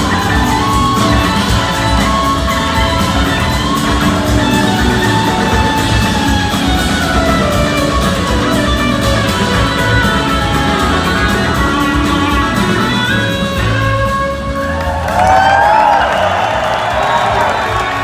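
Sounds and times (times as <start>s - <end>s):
lead guitar line: 0.0s - 18.0s
live rock band playing: 0.0s - 18.0s.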